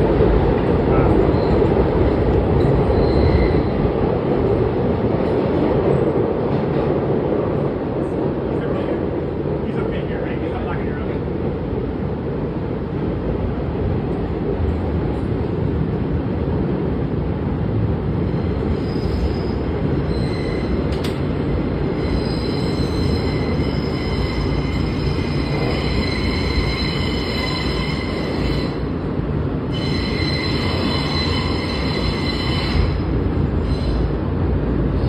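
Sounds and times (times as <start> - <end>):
train wheels rumbling on track: 0.0 - 35.0
high-pitched wheel squeal: 2.9 - 3.7, 18.8 - 20.8, 22.0 - 28.8, 29.7 - 33.0.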